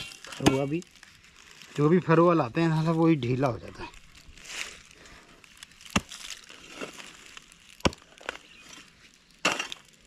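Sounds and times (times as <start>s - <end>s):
pick-mattock striking hard soil: 0.0s - 0.8s, 5.8s - 10.0s.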